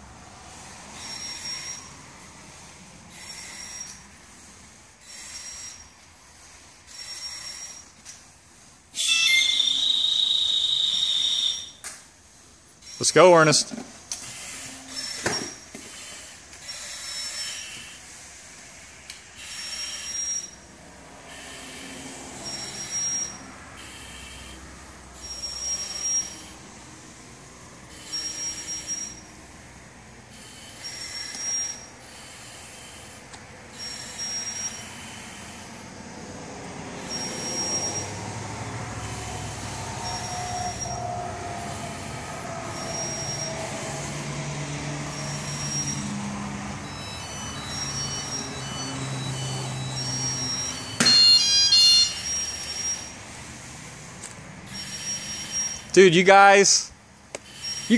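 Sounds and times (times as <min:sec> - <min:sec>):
breathing through a face mask: 0:15.7 - 0:20.3, 0:21.0 - 0:22.9, 0:23.8 - 0:26.7, 0:30.3 - 0:37.6.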